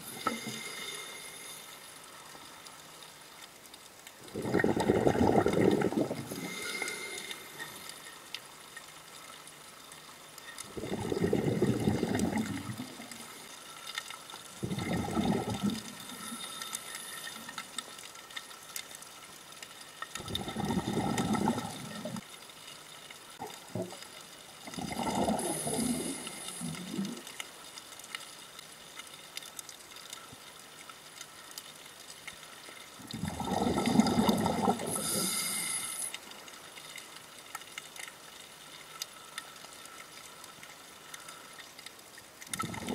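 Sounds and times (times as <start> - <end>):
underwater bubbles gurgling: 0.0 - 42.9.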